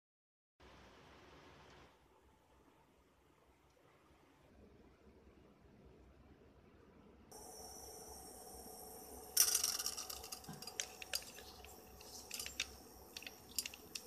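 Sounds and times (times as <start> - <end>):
popcorn crackling and clicking: 9.4 - 14.0.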